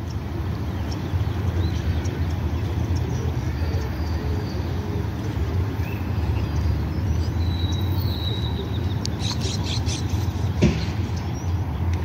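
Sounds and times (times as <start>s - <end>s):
bird chirps: 5.8s - 10.4s.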